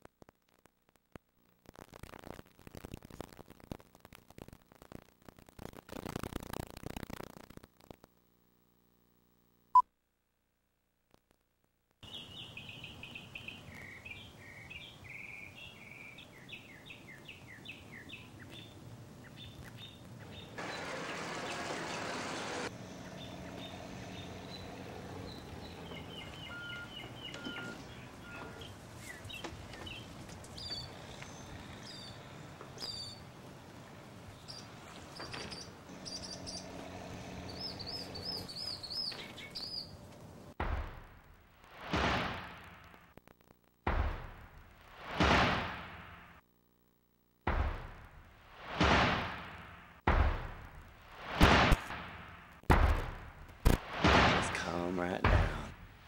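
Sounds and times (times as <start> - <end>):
birds chirping: 12.0 - 40.5
heavy machinery engine drone: 20.3 - 38.9.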